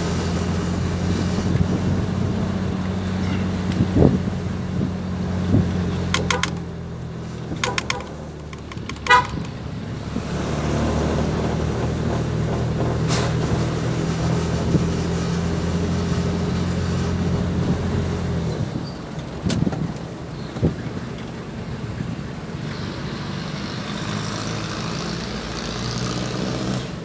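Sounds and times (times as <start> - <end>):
van engine running: 0.0 - 25.8
short horn beeps: 7.6 - 8.3, 9.0 - 9.5.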